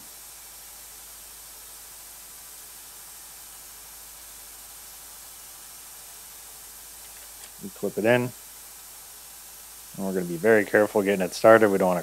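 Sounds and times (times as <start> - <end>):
vacuum machine hissing: 0.0 - 12.0.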